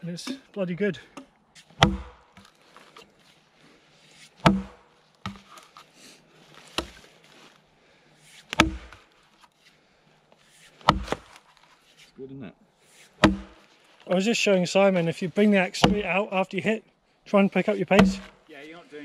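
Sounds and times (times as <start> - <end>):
axe chopping log: 1.6 - 2.6, 4.4 - 5.6, 6.7 - 7.0, 8.5 - 9.1, 10.8 - 11.4, 13.2 - 13.7, 15.8 - 16.2, 17.8 - 18.4.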